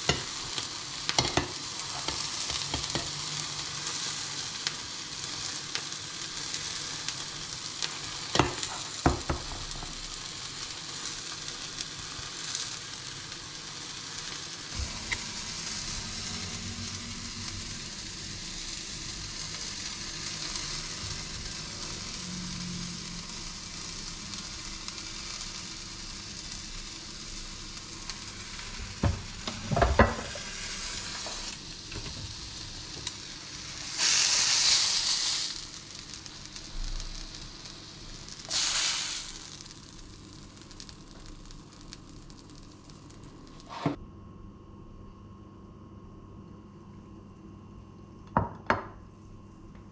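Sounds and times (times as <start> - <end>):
tomato slices sizzling in oil: 0.0 - 44.0.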